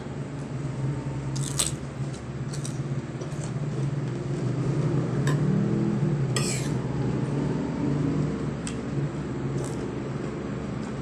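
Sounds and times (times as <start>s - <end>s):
crunching bites into radish: 1.4s - 1.8s.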